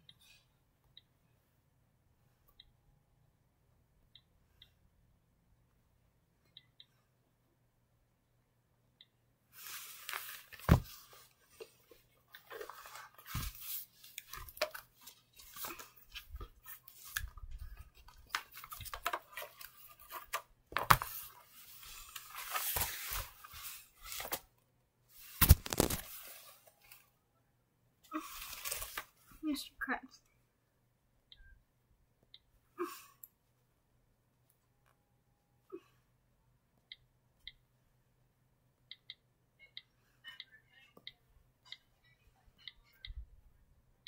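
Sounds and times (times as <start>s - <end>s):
rustling handling noise: 9.6s - 24.5s, 25.1s - 27.1s, 28.2s - 29.4s.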